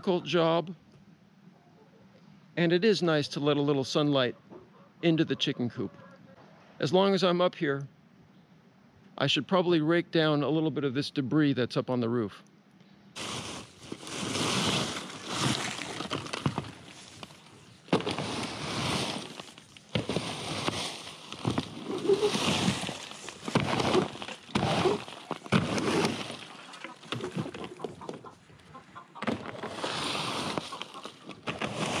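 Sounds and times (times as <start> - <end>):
rake scraping leaves on roof panels: 13.2 - 28.3, 29.2 - 32.0.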